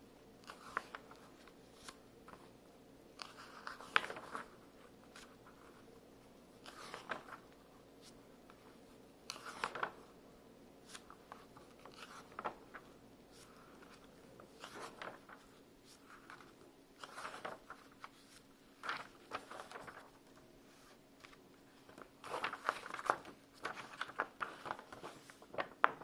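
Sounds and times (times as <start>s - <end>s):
faint steady hum: 0.0s - 26.0s
magazine pages turning: 0.4s - 2.5s, 3.1s - 5.9s, 6.6s - 10.2s, 10.8s - 26.0s.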